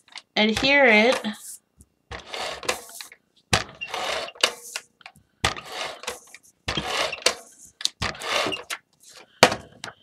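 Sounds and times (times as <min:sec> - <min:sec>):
tape gun whirring on paper: 0:05.5 - 0:08.8.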